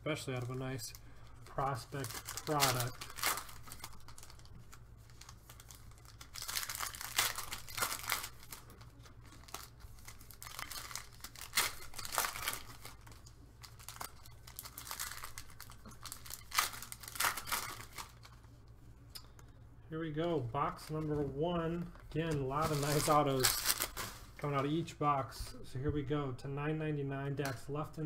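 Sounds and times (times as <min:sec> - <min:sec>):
card wrappers tearing and crinkling: 0:00.2 - 0:18.5, 0:22.5 - 0:24.4.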